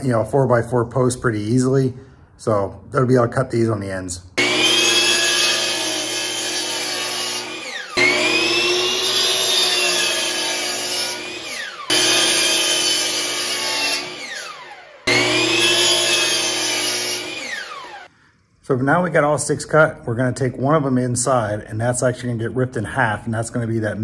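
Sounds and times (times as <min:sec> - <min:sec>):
miter saw motor whining: 0:04.4 - 0:18.1.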